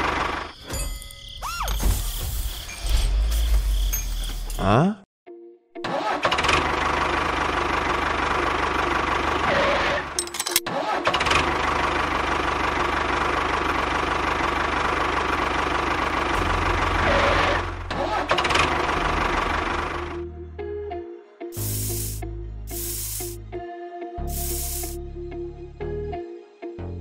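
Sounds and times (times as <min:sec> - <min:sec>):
tractor engine starting and running: 0:00.0 - 0:00.6, 0:05.8 - 0:20.2.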